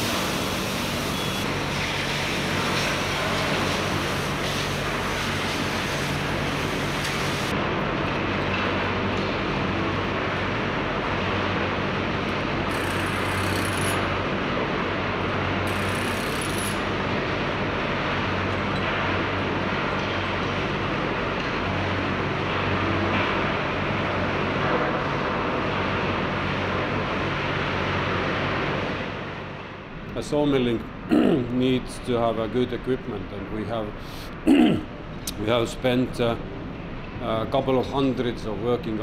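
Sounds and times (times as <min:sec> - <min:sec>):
sawmill machinery running: 0:00.0 - 0:07.5, 0:11.9 - 0:19.1.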